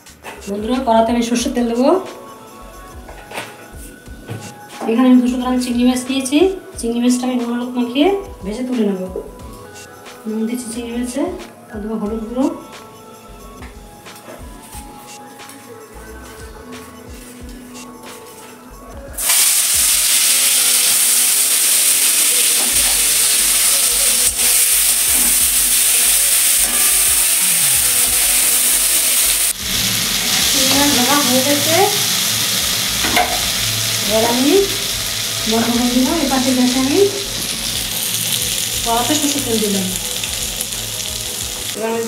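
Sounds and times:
prawns sizzling in hot oil: 19.2s - 41.8s.

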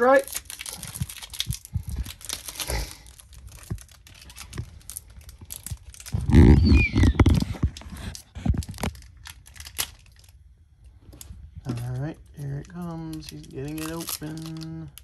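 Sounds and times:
foil wrapper crinkling: 0.0s - 10.4s, 11.1s - 15.0s
handling noise on microphone: 5.8s - 9.0s.

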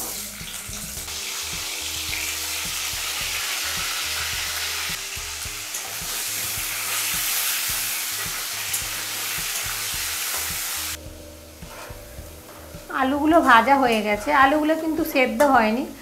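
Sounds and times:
potatoes sizzling in oil: 0.0s - 16.0s
metal spatula scraping pan: 11.6s - 12.6s.

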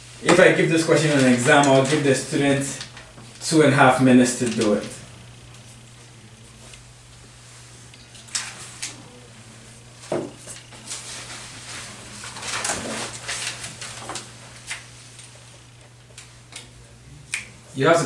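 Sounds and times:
paper rustling: 0.3s - 3.1s, 10.4s - 15.3s.

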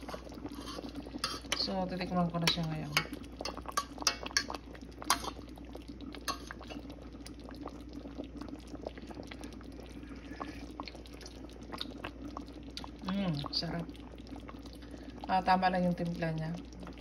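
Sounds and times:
steady low hum: 0.0s - 17.0s
stew simmering with popping bubbles: 0.0s - 17.0s
metal spoon clinking on pot: 3.8s - 5.3s.

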